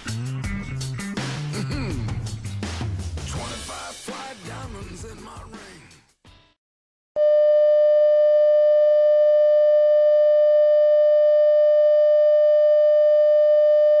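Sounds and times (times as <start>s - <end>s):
steady electronic test tone: 7.2s - 14.0s.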